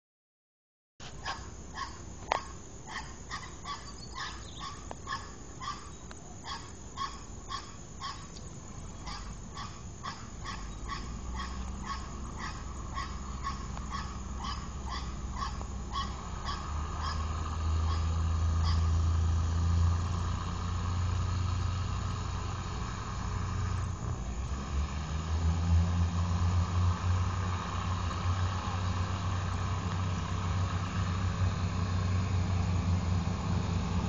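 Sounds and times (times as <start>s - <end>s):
low rumble of train: 1.1s - 34.0s
dog barking: 1.2s - 8.3s, 9.0s - 18.9s.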